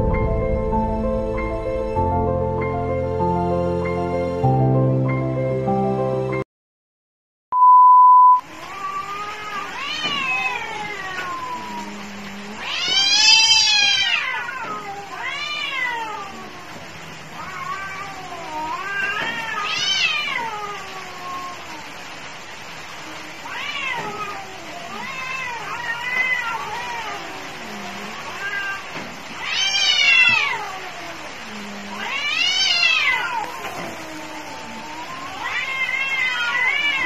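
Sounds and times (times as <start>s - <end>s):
cats yowling: 8.5s - 37.0s.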